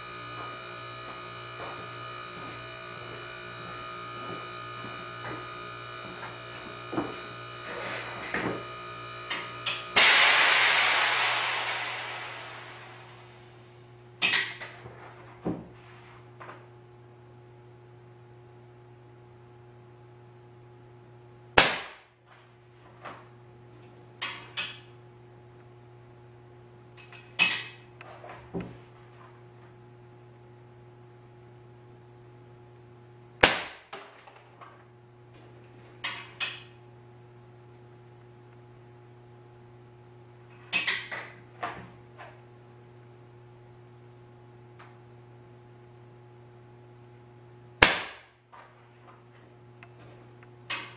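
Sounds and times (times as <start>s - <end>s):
steady low hum: 0.0s - 50.9s
air gun sharp cracks: 10.0s - 12.5s, 21.6s - 22.1s, 33.4s - 33.9s, 47.8s - 48.4s.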